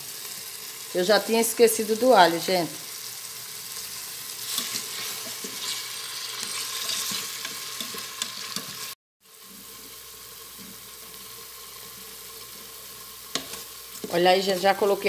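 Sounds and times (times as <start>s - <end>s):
vegetables sizzling in oil: 0.0s - 15.0s
spoon stirring clicks and scrapes: 4.4s - 8.9s, 13.3s - 14.2s.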